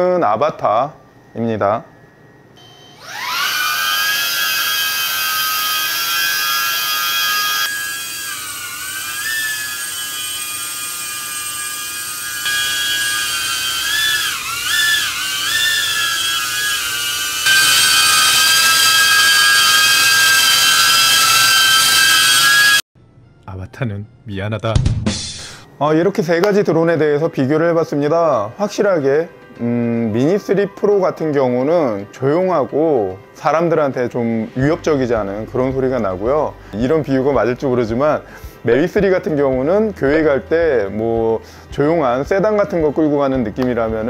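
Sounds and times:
drone propellers whining: 2.6s - 22.8s.

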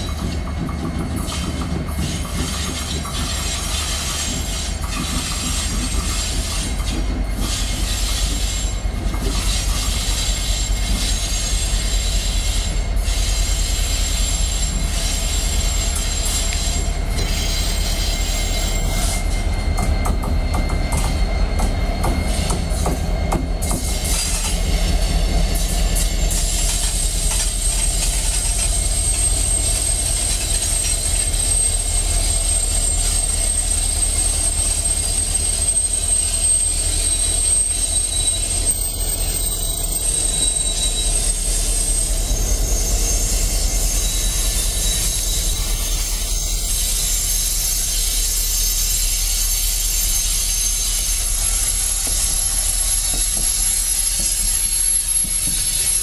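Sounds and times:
train wheels on rails: 0.0s - 56.0s
high wheel squeal: 1.2s - 56.0s.

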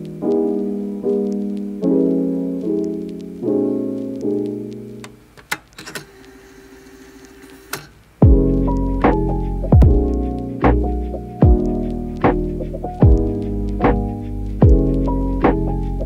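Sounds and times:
piano chords: 0.0s - 5.4s, 8.2s - 16.0s
scattered clicks: 4.1s - 6.4s.

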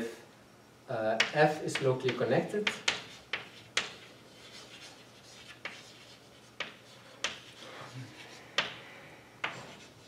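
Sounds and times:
chalk tapping on board: 1.2s - 7.6s, 8.6s - 8.8s, 9.4s - 10.0s
chalk scratching on blackboard: 2.6s - 8.8s, 9.4s - 10.0s.

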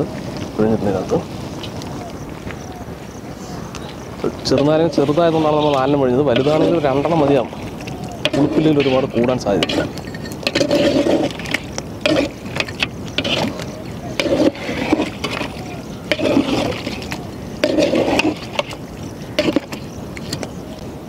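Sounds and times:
spoon scraping metal pot: 4.4s - 20.5s
spoon stirring thick sauce: 4.5s - 20.5s.

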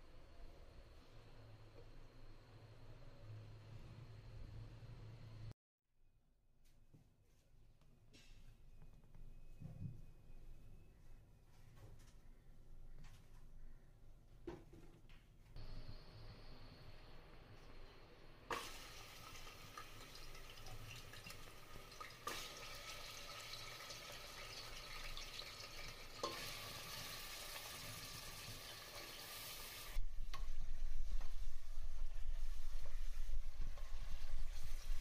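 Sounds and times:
food sizzling in a pan: 18.5s - 30.0s.

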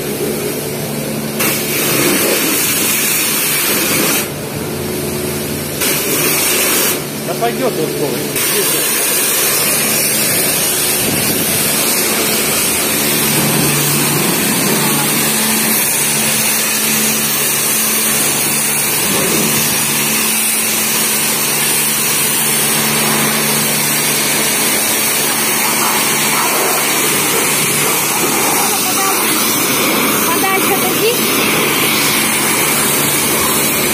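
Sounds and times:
pressure washer water jet hissing: 0.0s - 33.9s
low hum: 7.0s - 33.9s.

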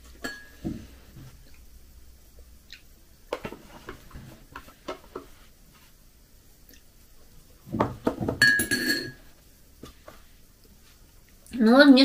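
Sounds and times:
mouth sounds of eating: 6.6s - 6.9s.

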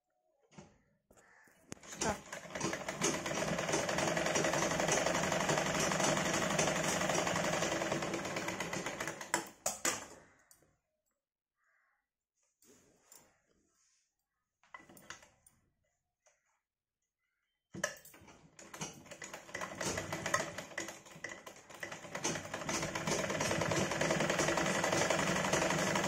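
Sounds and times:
sewing machine stitching: 1.8s - 10.0s, 18.2s - 26.0s.

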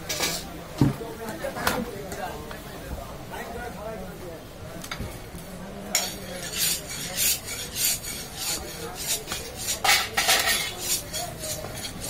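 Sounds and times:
cleaver scraping on wooden block: 6.0s - 12.0s.

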